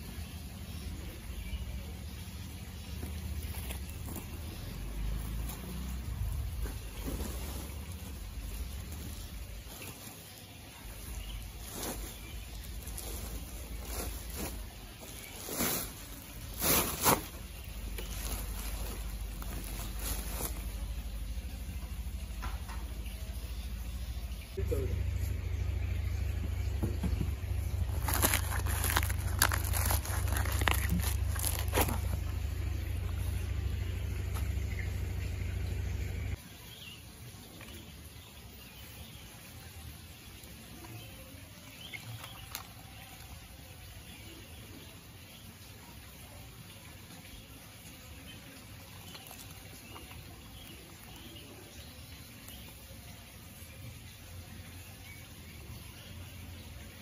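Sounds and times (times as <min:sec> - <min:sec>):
outdoor ambience: 0:00.0 - 0:57.0
plastic sacks rustling: 0:02.8 - 0:22.1, 0:27.2 - 0:33.6, 0:42.0 - 0:43.2, 0:48.9 - 0:51.3
low rumble: 0:17.4 - 0:36.4.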